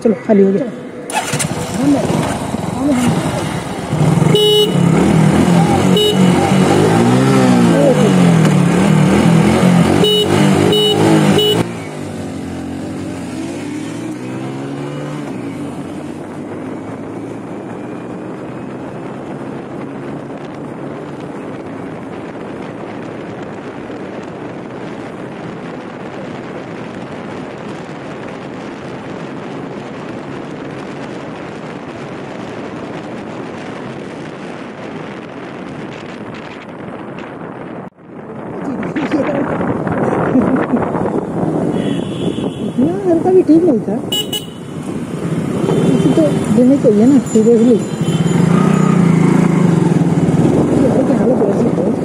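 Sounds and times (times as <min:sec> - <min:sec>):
motorcycle engines revving: 0:00.0 - 0:52.0
short horn toots: 0:04.3 - 0:05.0, 0:10.0 - 0:11.7, 0:41.7 - 0:42.8, 0:44.1 - 0:44.8
wind rushing on microphone: 0:11.1 - 0:52.0.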